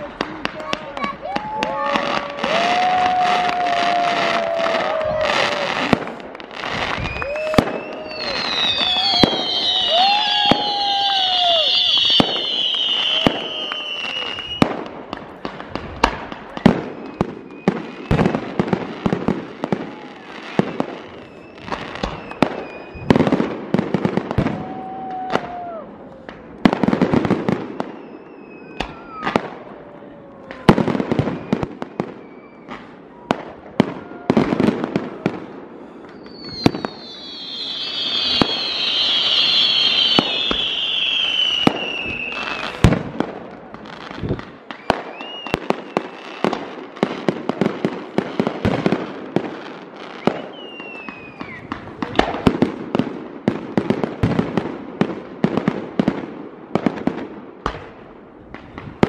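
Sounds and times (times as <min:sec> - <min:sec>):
fireworks bangs: 0:00.0 - 0:59.0
firework whistles: 0:01.0 - 0:14.9, 0:16.0 - 0:18.6, 0:19.6 - 0:23.4, 0:27.0 - 0:29.5, 0:31.0 - 0:33.2, 0:35.8 - 0:43.0, 0:44.0 - 0:46.6, 0:50.0 - 0:52.5
high falling whistling: 0:06.9 - 0:14.6, 0:36.1 - 0:42.7, 0:44.8 - 0:46.1.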